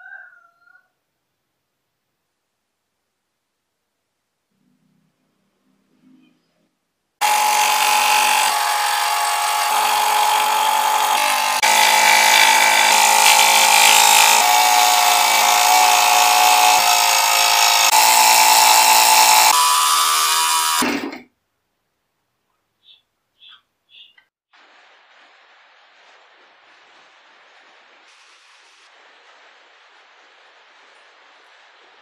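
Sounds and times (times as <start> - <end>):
scroll saw cutting plywood: 7.2 - 21.2.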